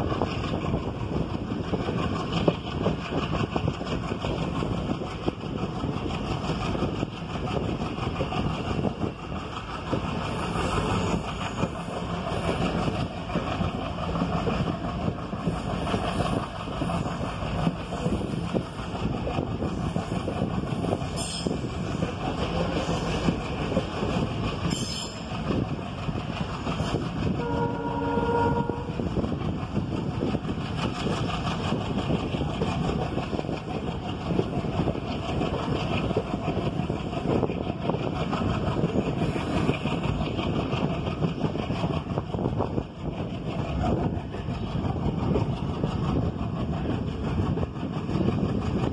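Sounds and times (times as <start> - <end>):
train wheel and rail noise: 0.0 - 48.9
train horn: 27.4 - 29.1.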